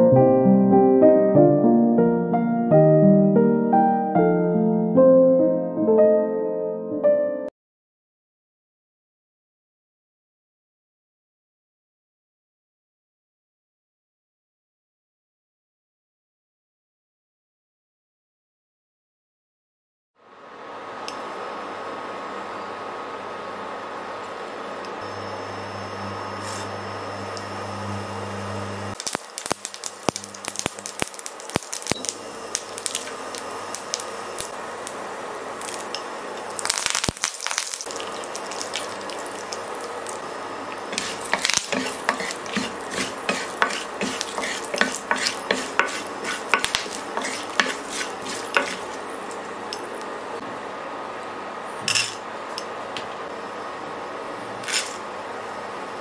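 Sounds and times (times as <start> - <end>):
hot oil sizzling in a pan: 25.0 - 49.8
seeds crackling and popping: 29.0 - 50.1.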